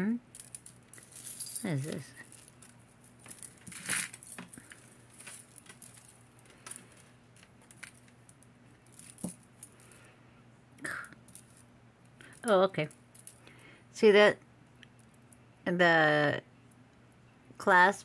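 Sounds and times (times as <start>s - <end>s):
metal chains and beads clinking: 0.3s - 10.1s, 11.2s - 13.6s.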